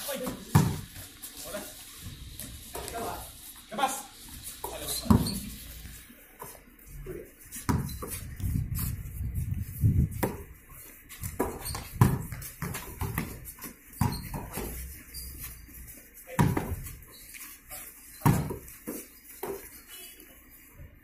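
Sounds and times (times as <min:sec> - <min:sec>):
footsteps and shuffling: 0:00.0 - 0:21.0
basketball bouncing on concrete: 0:00.2 - 0:01.0, 0:04.6 - 0:05.5, 0:07.6 - 0:09.0, 0:10.0 - 0:10.6, 0:11.2 - 0:14.9, 0:16.4 - 0:17.0, 0:18.2 - 0:19.7.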